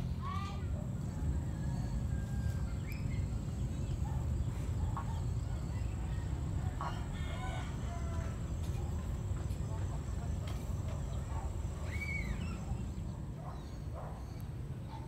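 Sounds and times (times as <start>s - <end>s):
chickens calling: 0.8s - 15.0s
rooster crowing: 1.0s - 2.9s, 6.1s - 8.6s.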